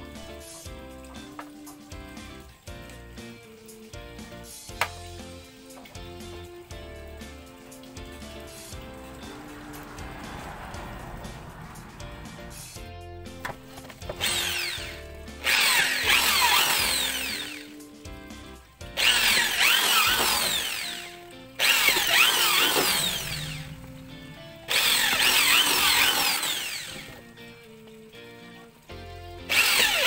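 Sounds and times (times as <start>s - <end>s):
background music: 0.0s - 30.0s
small power drill running: 14.1s - 17.8s, 19.0s - 24.0s, 24.7s - 27.2s, 29.5s - 30.0s.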